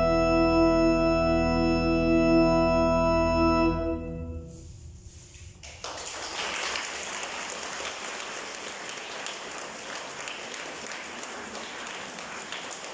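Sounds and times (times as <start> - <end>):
audience applauding: 5.6 - 12.9.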